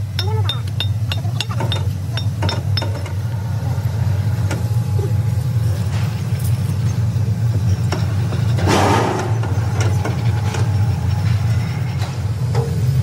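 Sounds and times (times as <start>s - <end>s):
low machinery drone: 0.0s - 13.0s.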